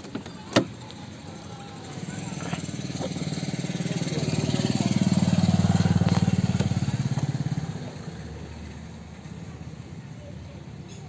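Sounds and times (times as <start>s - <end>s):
small engine pulsing: 0.7s - 8.8s.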